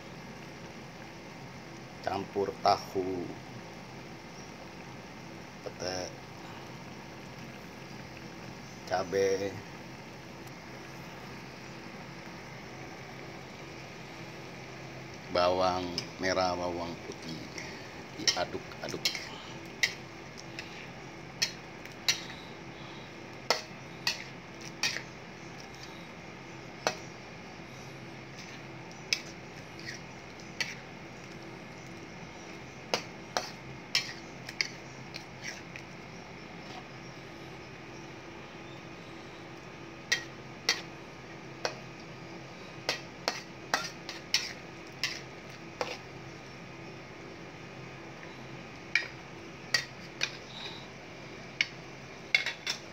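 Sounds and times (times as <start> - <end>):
metal spatula scraping wok: 17.5 - 22.8, 23.5 - 25.1, 28.3 - 30.8, 33.0 - 35.8, 42.9 - 46.1, 52.3 - 52.8.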